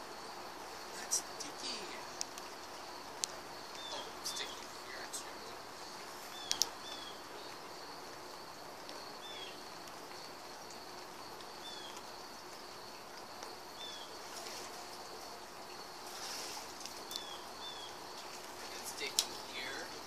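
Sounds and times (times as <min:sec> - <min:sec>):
steady low hiss: 0:00.0 - 0:20.0
bird chirping: 0:03.7 - 0:05.6, 0:06.3 - 0:07.6.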